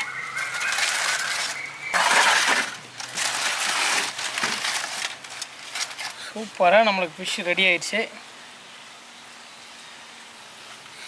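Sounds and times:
foil and leaf crinkling: 0.0s - 6.9s.

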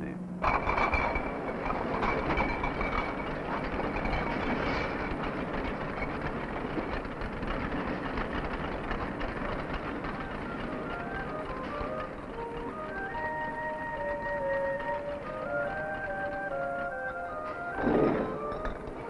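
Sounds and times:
machinery clatter: 0.0s - 19.0s
glass bottles knocking: 0.4s - 6.2s.

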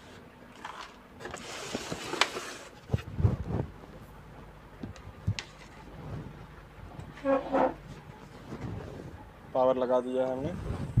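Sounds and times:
rustle on a workbench: 0.0s - 3.8s, 5.3s - 9.2s.

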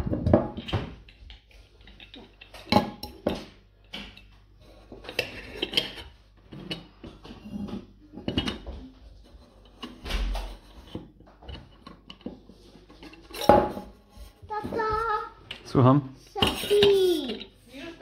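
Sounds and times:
metal clinks and scrapes: 0.6s - 14.7s, 16.3s - 18.0s.

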